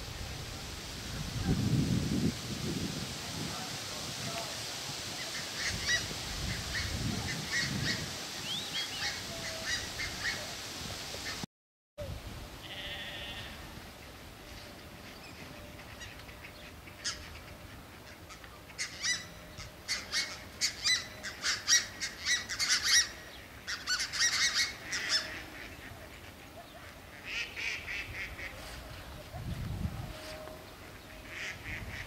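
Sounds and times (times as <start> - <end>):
geese honking: 15.5 - 32.0.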